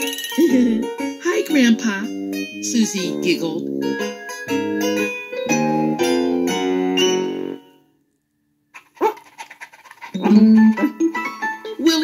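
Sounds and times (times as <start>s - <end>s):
keyboard chords: 0.0s - 8.0s.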